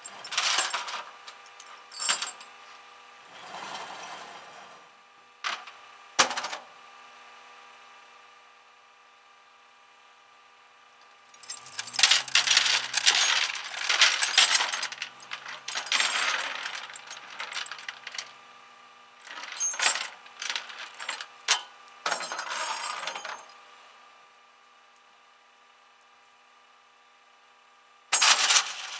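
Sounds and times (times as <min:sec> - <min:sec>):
tow chain clanking on steel deck: 0:00.1 - 0:01.0, 0:01.6 - 0:02.5, 0:11.4 - 0:18.3, 0:19.2 - 0:23.5, 0:28.2 - 0:28.9.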